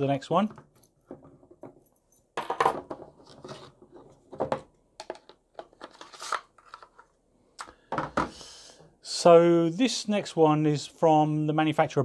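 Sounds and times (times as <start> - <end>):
plastic clacks and knocks: 4.2 - 6.1.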